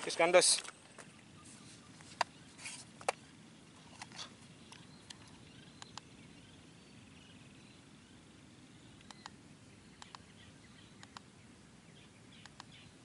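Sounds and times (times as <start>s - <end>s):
soft rustles: 0.4s - 3.2s.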